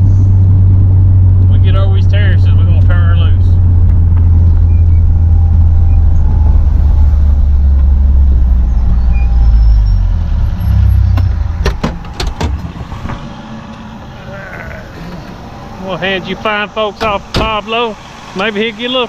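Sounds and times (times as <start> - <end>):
vehicle engine rumbling: 0.0 - 19.0
sharp clicks and knocks: 11.1 - 13.8.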